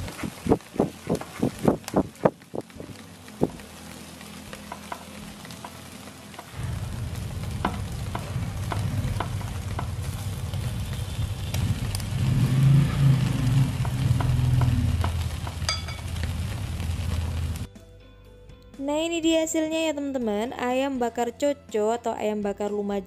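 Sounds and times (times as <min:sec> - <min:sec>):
chicken sizzling over charcoal: 0:00.0 - 0:17.7
crackles: 0:00.0 - 0:17.7.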